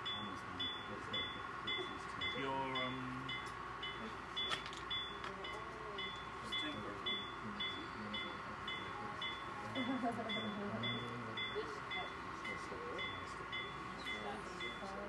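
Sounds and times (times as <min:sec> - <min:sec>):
model locomotive bell ringing: 0:00.0 - 0:15.0
people chatting in background: 0:05.1 - 0:15.0.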